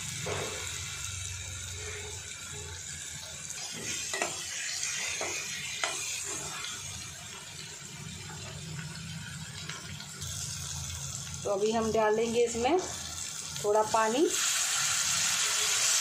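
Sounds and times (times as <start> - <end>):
masala sizzling in a pan: 0.0 - 16.0
spoon scraping a metal pan: 3.7 - 6.6.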